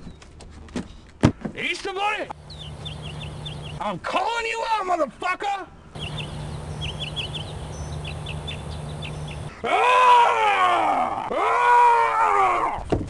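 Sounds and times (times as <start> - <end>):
steady low hum: 2.3 - 3.8, 5.9 - 9.6
loud wailing cries: 9.4 - 12.8.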